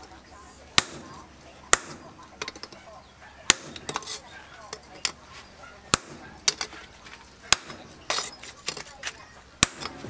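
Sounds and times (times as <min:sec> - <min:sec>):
hammer striking chisel on metal: 0:00.8 - 0:02.8, 0:03.4 - 0:05.2, 0:05.9 - 0:06.7, 0:07.5 - 0:08.9, 0:09.6 - 0:10.0.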